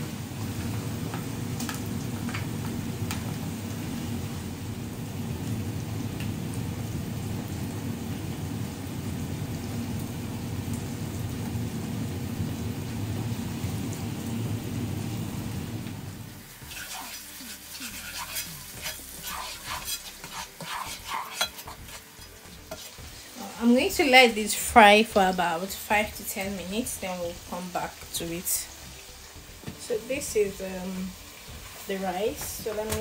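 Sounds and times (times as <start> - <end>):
vegetables sizzling in a pot: 0.0 - 33.0
spatula scraping a pot: 16.6 - 23.3.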